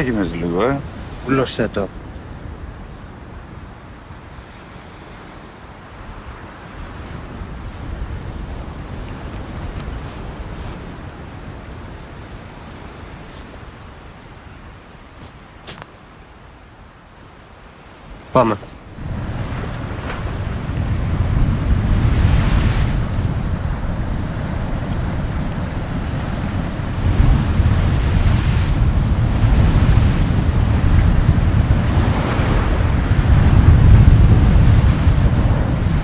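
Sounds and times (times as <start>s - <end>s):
sea surf breaking on shore: 0.0s - 15.8s, 17.5s - 36.0s
wind rumbling on microphone: 0.0s - 18.2s, 18.8s - 36.0s.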